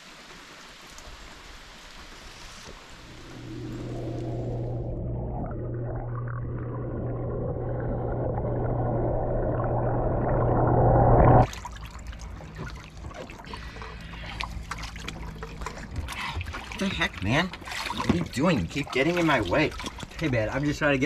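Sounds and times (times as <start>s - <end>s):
water trickling and splashing: 0.0s - 5.1s, 11.4s - 21.0s
muffled underwater churning water: 1.1s - 21.0s
steady low hum: 3.0s - 16.7s.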